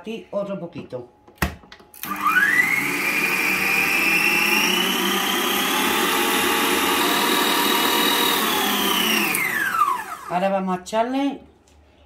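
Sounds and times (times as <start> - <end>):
electric stand mixer whining: 2.0 - 10.4.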